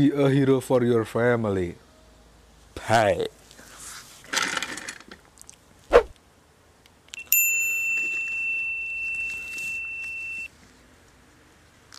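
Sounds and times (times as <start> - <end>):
sharp downward swoosh: 5.9 - 6.1
high bell-like ding: 7.2 - 10.5.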